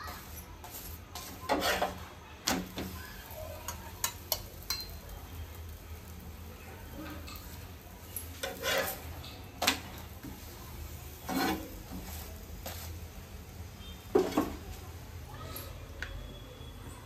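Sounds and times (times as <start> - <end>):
metal spatula scraping on iron: 0.0 - 2.9, 7.0 - 10.5, 11.1 - 12.9.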